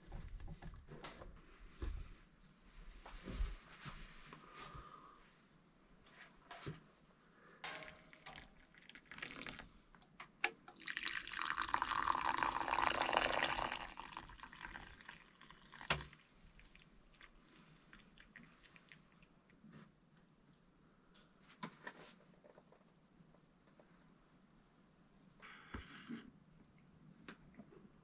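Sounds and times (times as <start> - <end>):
liquid pouring into cups: 7.7 - 19.4.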